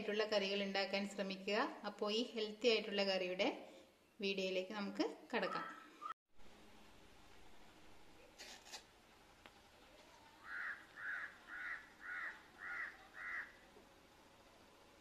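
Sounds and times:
crow cawing: 10.4s - 13.6s.

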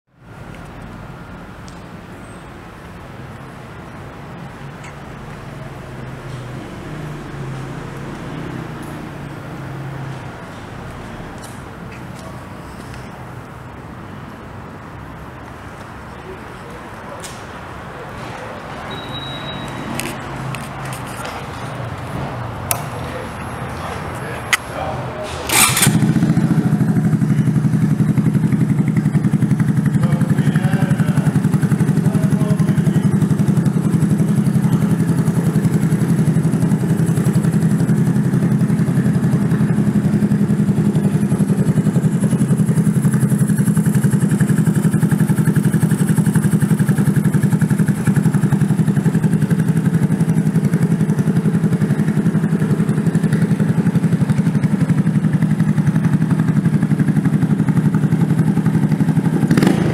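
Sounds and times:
motorcycle engine idling: 18.9s - 59.9s.

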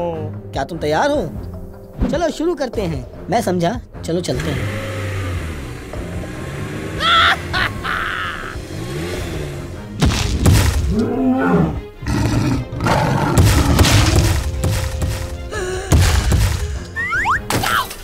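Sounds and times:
background music: 0.0s - 18.0s
heavy stomping thuds: 10.0s - 11.0s, 13.3s - 16.8s
dinosaur roar: 10.9s - 14.4s.

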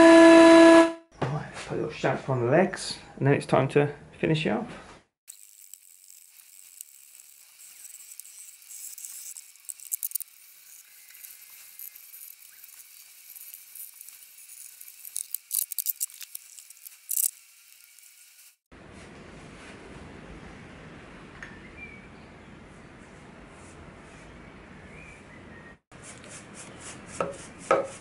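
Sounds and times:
sanding block on wood: 26.0s - 28.0s.

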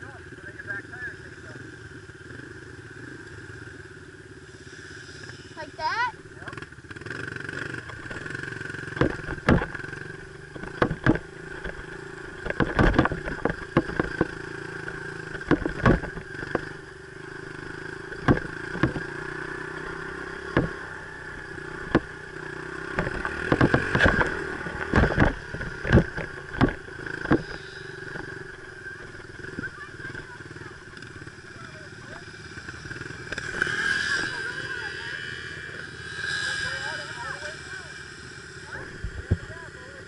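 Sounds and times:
dirt bike engine running: 0.0s - 40.0s
sharp knocks and clatter: 7.5s - 30.4s.

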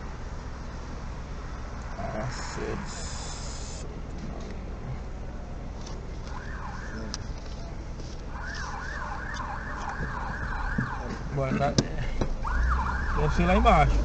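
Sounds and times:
car driving rumble: 0.0s - 14.0s
siren yelping: 6.3s - 7.2s, 8.4s - 11.3s, 12.4s - 13.7s.

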